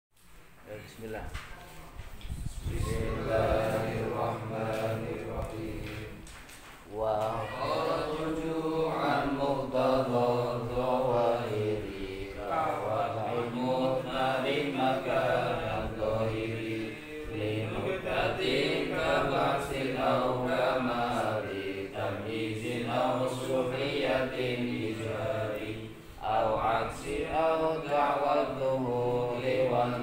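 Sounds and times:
man chanting: 6.9 - 10.4.

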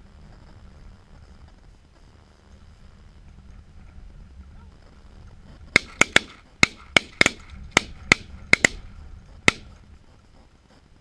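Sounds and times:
shotgun shots: 5.8 - 8.8, 9.5 - 9.7.

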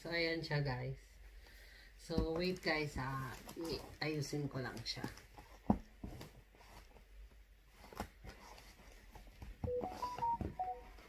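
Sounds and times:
electronic tablet jingle: 9.7 - 11.0.

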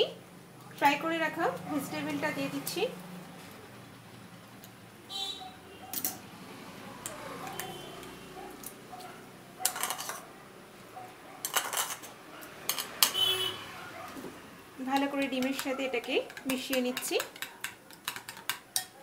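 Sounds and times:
spoon scraping and clinking plate: 9.6 - 10.3, 11.4 - 13.2.

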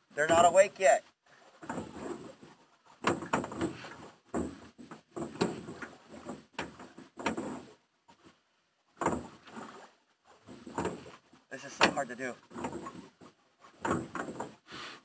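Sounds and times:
paddle knocks and scrapes on boat: 0.1 - 15.0
water splashing: 9.0 - 14.6.

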